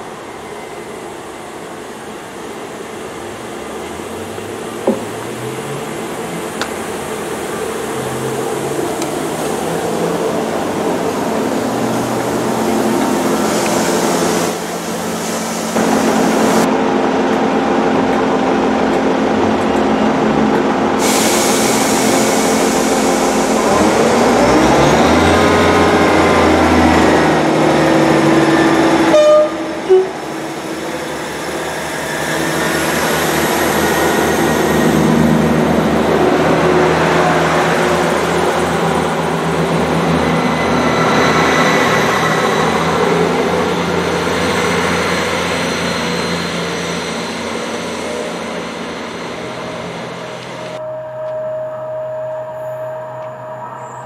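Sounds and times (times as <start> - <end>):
diesel train engines revving: 0.0 - 54.0
train carriages rolling past: 0.0 - 54.0
train horn toot: 29.1 - 30.2.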